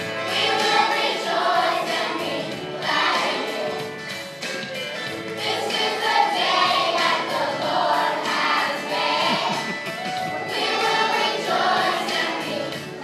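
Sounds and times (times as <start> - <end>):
children singing in chorus: 0.2 - 3.8, 5.4 - 9.7, 10.4 - 12.8.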